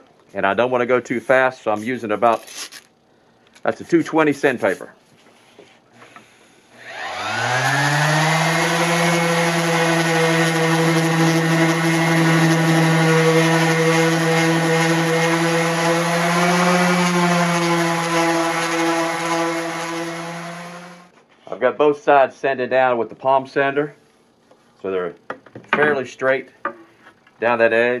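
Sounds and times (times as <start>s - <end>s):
palm sander whine: 6.8s - 21.1s.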